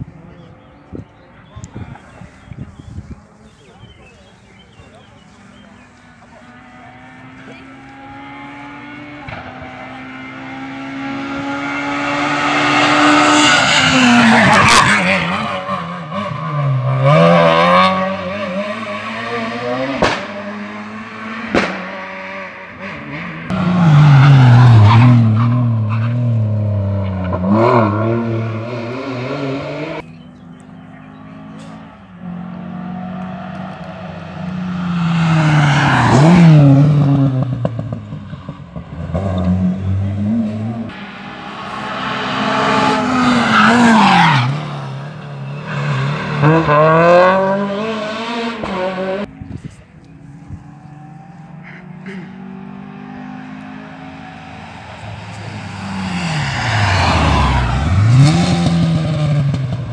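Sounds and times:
rally car engines revving: 0.0s - 59.9s
sharp cracks: 21.5s - 21.9s.

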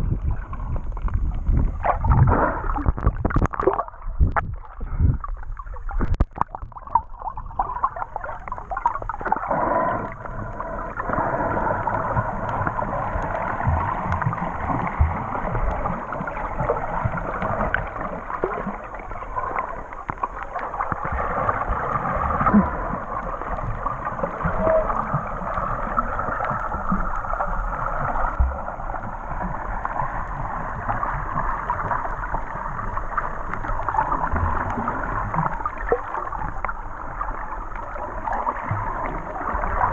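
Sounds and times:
water splashing clicks: 1.0s - 4.6s, 5.9s - 7.1s
underwater rushing hiss: 9.4s - 15.8s.

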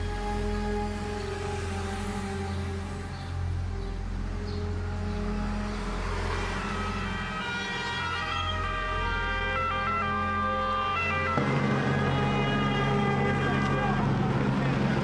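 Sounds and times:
emergency vehicle sirens: 5.9s - 15.0s.

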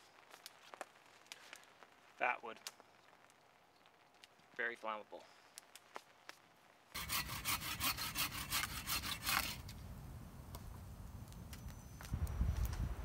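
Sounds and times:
hand saw cutting wood: 7.0s - 9.7s.

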